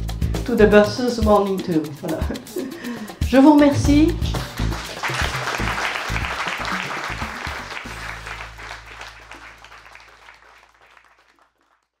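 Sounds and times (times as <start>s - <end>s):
music with low bass notes: 0.0s - 1.4s, 7.2s - 9.9s
audience applauding: 4.4s - 12.0s.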